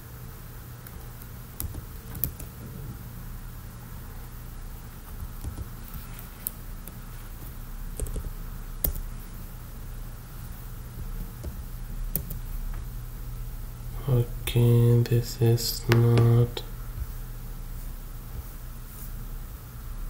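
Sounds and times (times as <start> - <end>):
steady low hum: 0.0 - 20.0
computer keyboard keystrokes: 0.8 - 2.6, 5.1 - 9.1, 11.0 - 12.5.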